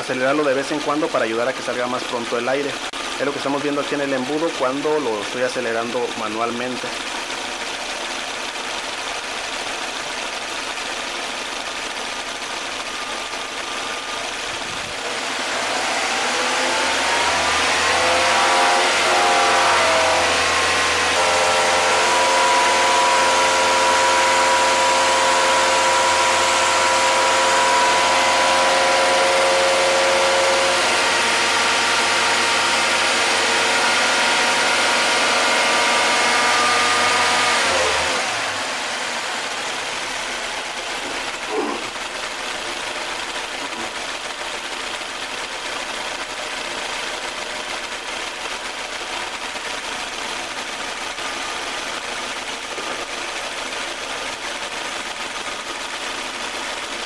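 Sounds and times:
car engine revving: 12.5s - 44.4s.

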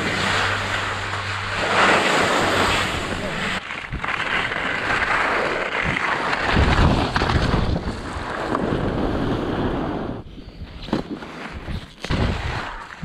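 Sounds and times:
heavy low bumps: 0.0s - 9.6s
skis scraping through snow: 0.0s - 13.0s
wind on camera microphone: 2.5s - 10.9s.

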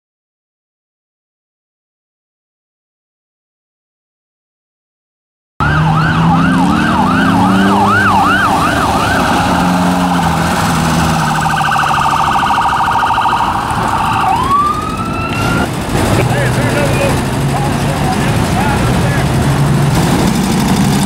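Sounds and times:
electronic siren: 5.6s - 15.7s
vehicle engine running: 5.6s - 21.0s.

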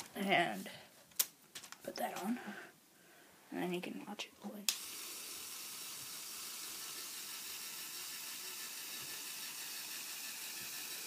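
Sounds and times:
small electric motor whirring: 4.7s - 11.0s.

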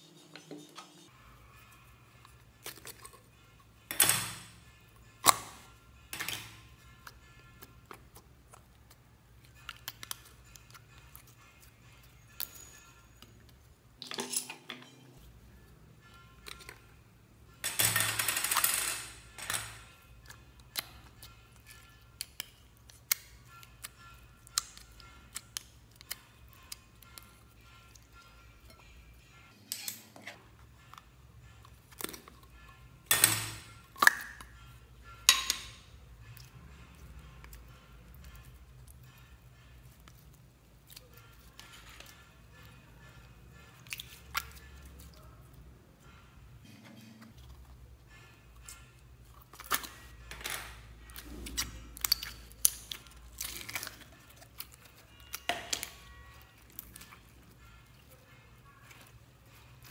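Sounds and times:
slime squelch: 36.3s - 45.6s, 51.1s - 59.9s.

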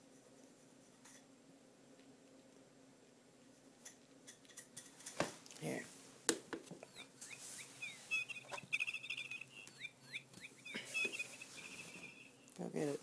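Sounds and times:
electronic bird chirps and trills: 6.9s - 12.5s.

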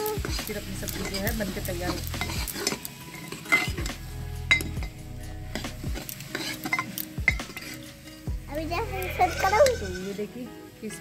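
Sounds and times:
metal spoon scraping a pot: 0.0s - 10.1s
spoon clinking against pot: 1.9s - 3.9s, 4.5s - 7.9s.

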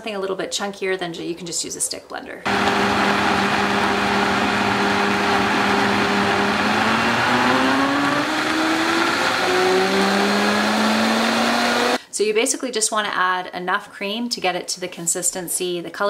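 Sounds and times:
blender whirring: 2.5s - 12.0s.

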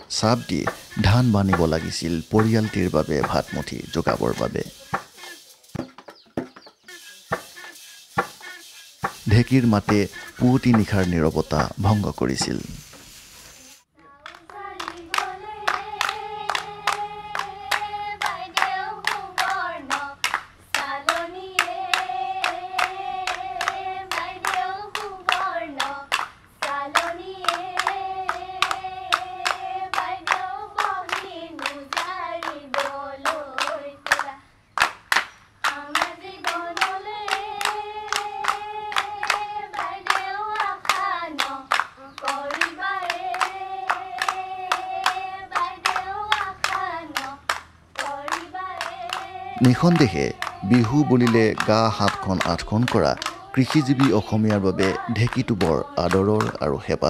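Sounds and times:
rhythmic hand-clapping: 0.0s - 12.7s, 14.0s - 57.0s
women singing together: 14.0s - 34.5s, 35.6s - 56.7s.

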